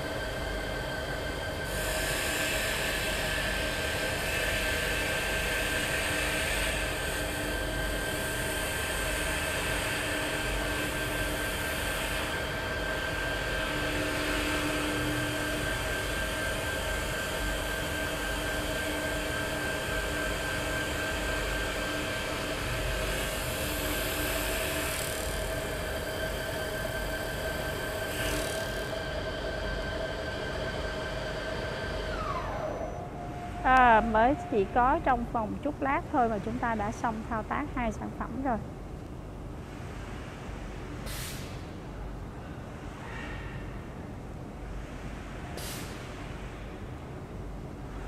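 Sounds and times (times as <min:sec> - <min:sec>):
wood lathe machine hum: 0:08.2 - 0:34.8.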